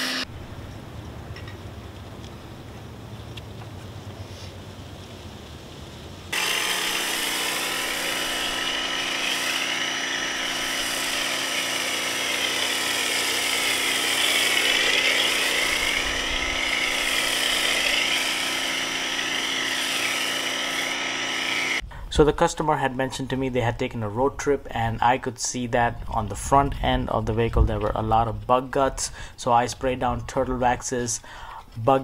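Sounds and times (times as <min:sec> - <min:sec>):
pressure washer motor whine: 0:00.0 - 0:00.4, 0:06.3 - 0:21.8
hiss of spray: 0:06.3 - 0:21.8.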